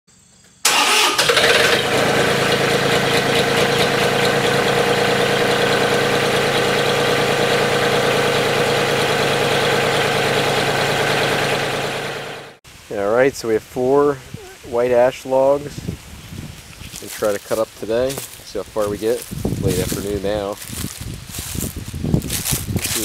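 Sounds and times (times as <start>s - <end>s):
engine running with even hum: 1.1s - 12.6s.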